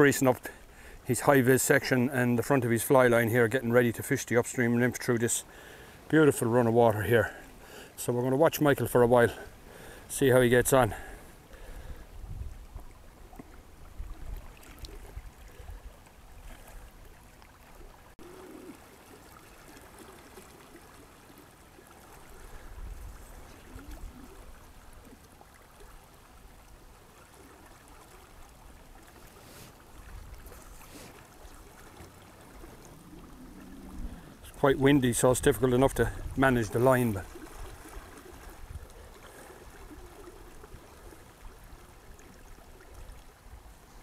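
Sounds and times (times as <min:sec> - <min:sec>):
river water rushing over riffle: 0:00.0 - 0:44.0
wind buffeting microphone: 0:11.7 - 0:12.9, 0:32.6 - 0:38.9.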